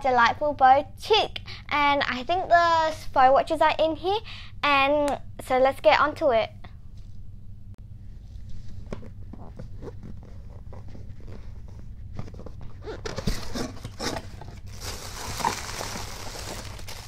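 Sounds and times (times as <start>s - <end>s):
tissue paper rustling: 14.7s - 17.0s.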